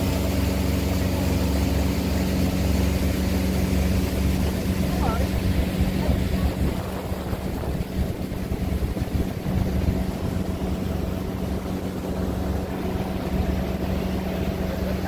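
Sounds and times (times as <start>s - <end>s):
boat motor running: 0.0s - 15.0s
water rushing: 0.0s - 15.0s
wind rushing: 5.3s - 14.6s.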